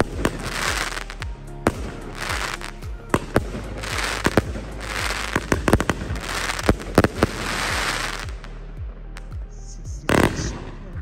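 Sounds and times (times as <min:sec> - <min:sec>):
fireworks sharp reports: 0:00.0 - 0:08.5, 0:09.8 - 0:10.8
fireworks crackling hiss: 0:00.0 - 0:08.6.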